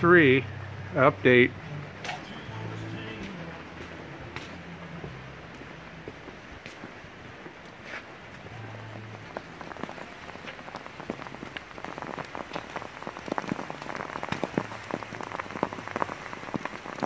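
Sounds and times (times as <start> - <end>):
rain falling: 0.0 - 17.0
sharp raindrop ticks: 5.5 - 17.0.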